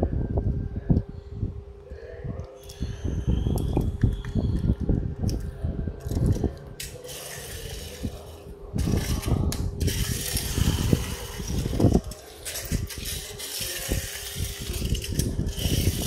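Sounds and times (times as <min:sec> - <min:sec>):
toy truck wheels rumbling on tile: 0:06.0 - 0:16.0.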